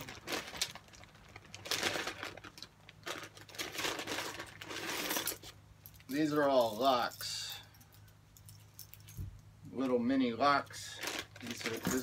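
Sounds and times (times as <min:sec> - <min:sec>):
plastic bag rustling: 0:00.0 - 0:05.6, 0:10.6 - 0:12.0
padlocks and keys clinking: 0:05.0 - 0:09.4, 0:11.5 - 0:12.0.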